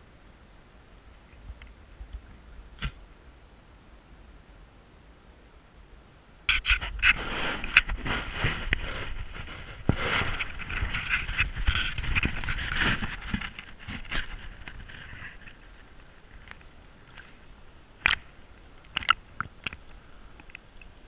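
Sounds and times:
camera handling noise: 0:06.5 - 0:08.0.

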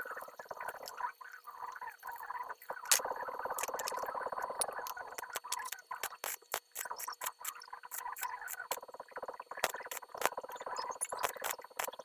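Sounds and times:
welding arc buzzing crackle: 0:09.6 - 0:12.0.

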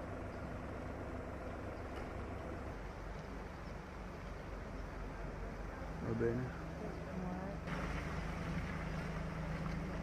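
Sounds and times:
faint outdoor hiss: 0:00.0 - 0:10.0
low engine rumble: 0:00.0 - 0:10.0.

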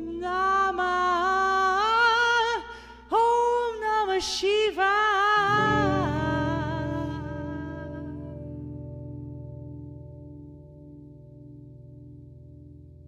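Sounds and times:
person singing long notes: 0:00.0 - 0:08.6
low held tone: 0:05.5 - 0:10.4.

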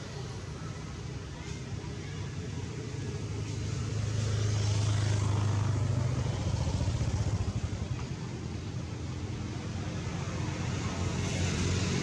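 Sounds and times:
vehicle engine humming past: 0:03.4 - 0:12.0.

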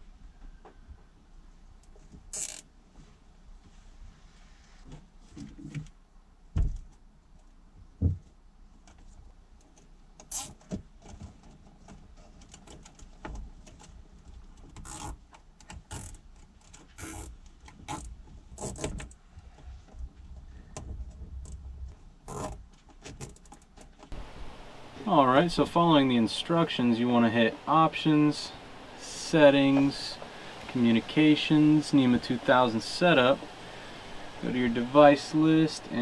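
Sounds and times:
small clicks and rattles: 0:08.8 - 0:24.1.

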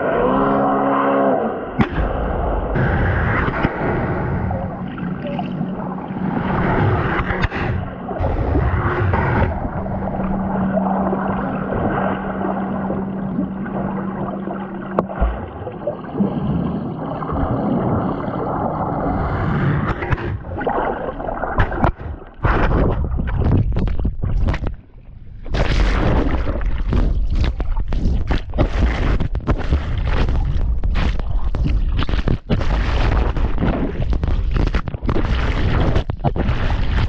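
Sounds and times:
low hum: 0:00.0 - 0:31.8
water gurgling and sloshing: 0:00.0 - 0:37.0
water surging and splashing: 0:01.8 - 0:24.8.

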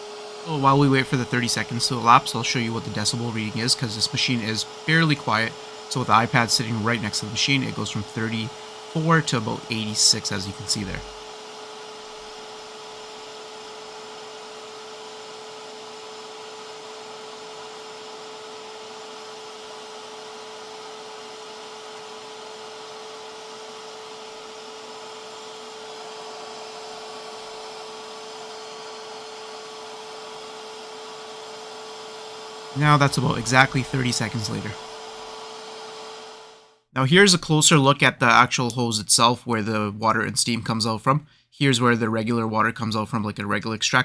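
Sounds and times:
steam cleaner humming: 0:00.0 - 0:36.7.

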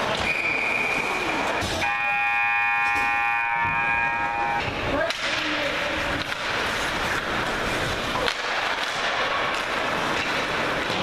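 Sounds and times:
hockey stick and puck clacks: 0:04.6 - 0:11.0
skates on ice: 0:04.7 - 0:11.0.

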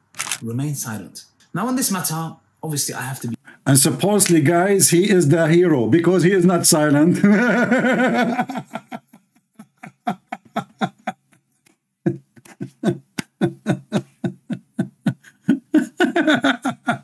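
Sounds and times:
man chuckling: 0:07.2 - 0:11.4, 0:12.1 - 0:17.0.

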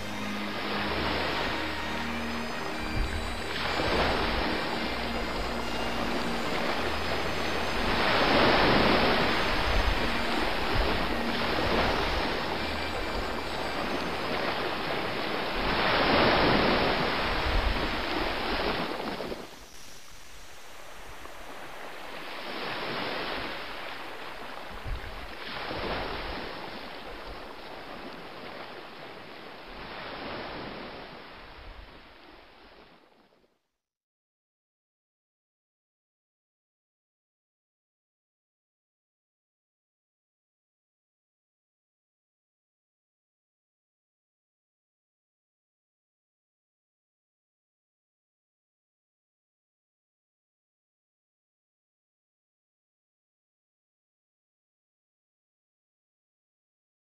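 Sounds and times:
sea waves washing in: 0:00.0 - 0:33.3.

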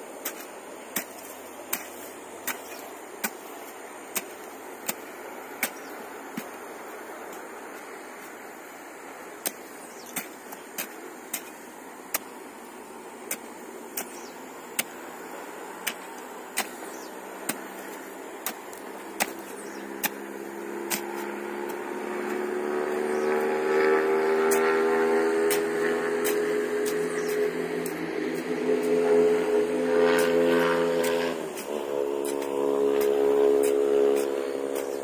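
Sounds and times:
hoe striking stony soil: 0:00.2 - 0:08.4, 0:09.2 - 0:23.2, 0:24.4 - 0:29.0, 0:31.0 - 0:35.0
vehicle engine: 0:11.8 - 0:35.0.

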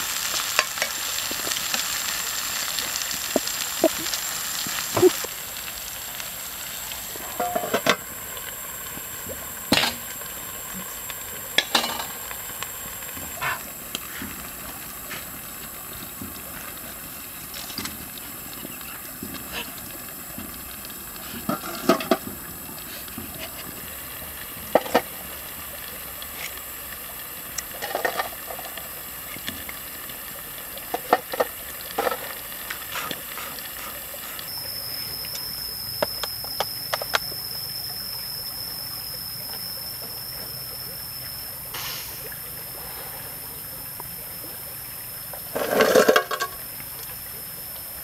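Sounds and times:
wood fire crackling: 0:00.0 - 0:40.1
steady high-pitched tone: 0:00.6 - 0:17.9, 0:33.4 - 0:48.0.

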